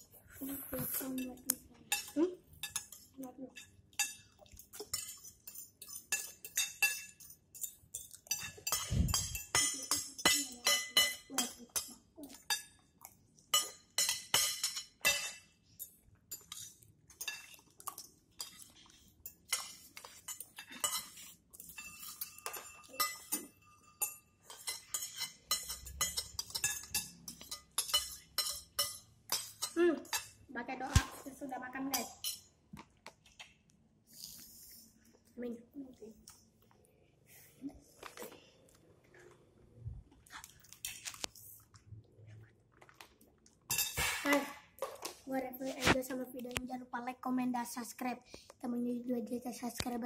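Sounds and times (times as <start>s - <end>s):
cutlery clinking on plates: 1.9s - 12.8s, 13.5s - 18.7s, 19.3s - 30.4s.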